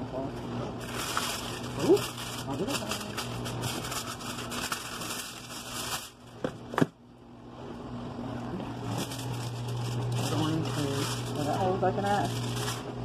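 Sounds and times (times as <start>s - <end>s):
aluminium foil crinkling: 0.8s - 6.4s, 8.8s - 13.0s.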